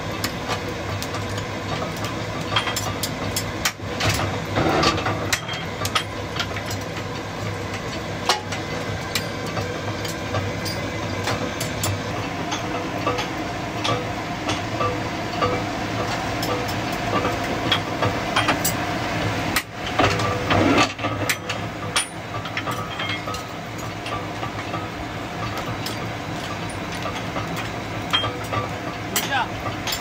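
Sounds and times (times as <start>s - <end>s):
nail-making machine running: 0.2s - 30.0s
metal clatter: 19.6s - 30.0s.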